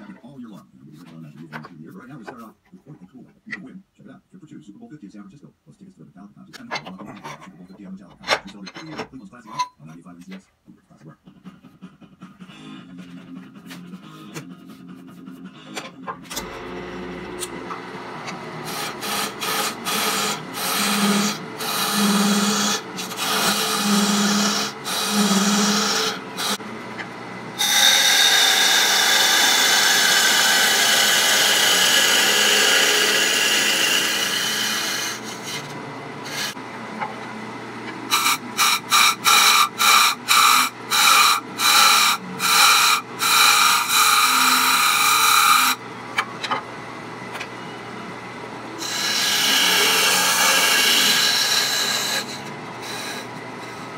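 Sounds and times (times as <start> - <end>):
lathe tool cutting wood: 15.8 - 46.5, 48.8 - 53.9.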